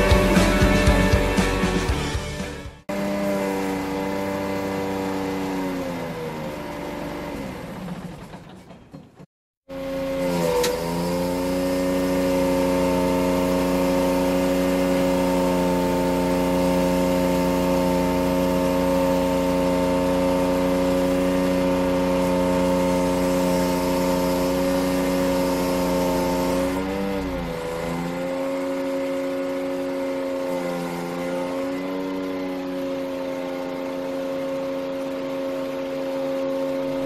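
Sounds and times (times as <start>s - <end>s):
truck engine running: 6.7s - 9.2s.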